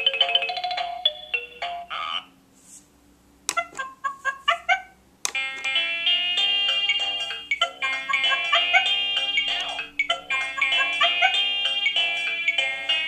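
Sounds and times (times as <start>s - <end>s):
chirpy electronic notes: 0.0s - 2.3s, 5.4s - 13.0s
tinny electronic melody: 5.3s - 13.0s.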